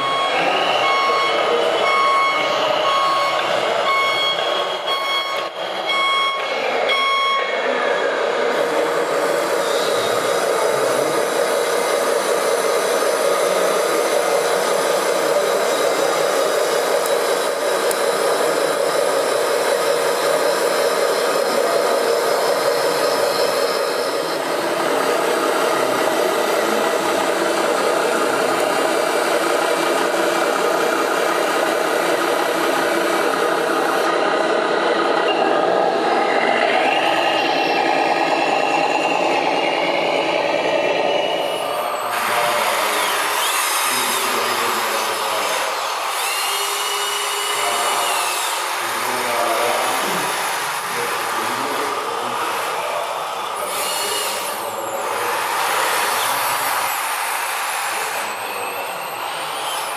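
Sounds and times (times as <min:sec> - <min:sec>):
reversing beeper: 0:00.0 - 0:43.0, 0:57.9 - 0:59.9
model truck engine sound: 0:00.0 - 0:59.9
tipper hydraulics: 0:00.0 - 0:59.9.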